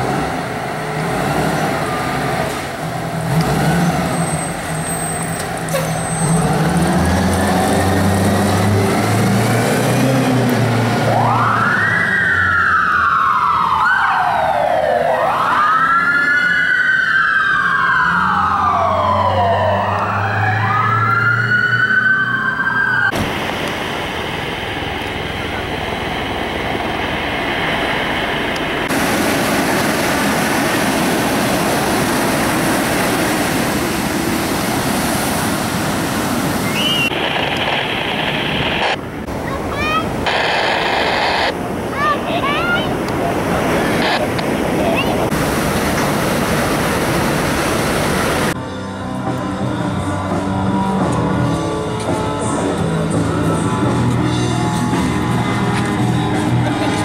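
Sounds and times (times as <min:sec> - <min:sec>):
rush of noise: 0:23.0 - 0:48.7
ocean surf breaking: 0:23.1 - 0:48.6.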